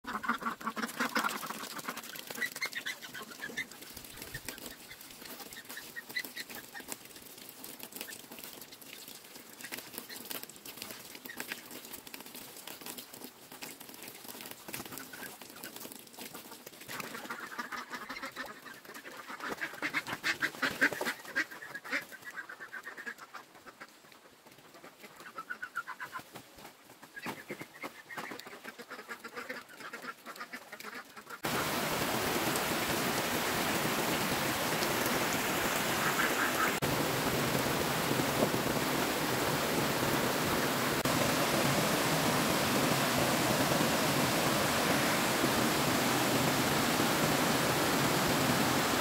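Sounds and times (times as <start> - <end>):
ducks quacking: 0.0 - 5.0, 16.9 - 24.0, 27.2 - 31.9, 34.1 - 36.9.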